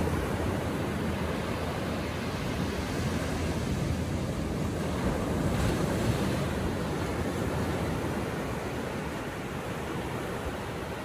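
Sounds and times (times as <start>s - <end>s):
ocean waves breaking on beach: 0.0s - 11.0s.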